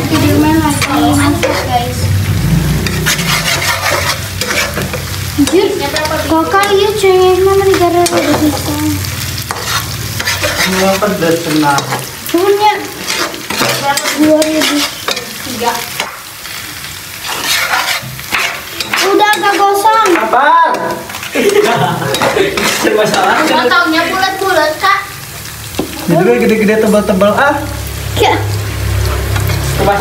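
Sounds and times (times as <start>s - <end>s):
vegetables sizzling in oil: 0.0s - 30.0s
spatula clicking on pan: 17.4s - 23.3s.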